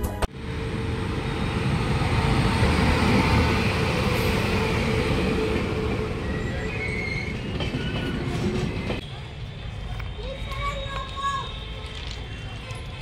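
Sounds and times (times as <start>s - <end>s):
train wheels rumbling on rails: 0.3s - 9.2s.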